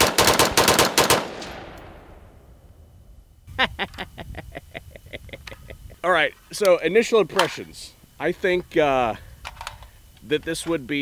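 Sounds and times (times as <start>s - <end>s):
rifle firing rapidly: 0.0s - 1.8s
gunshot echo: 0.0s - 2.5s.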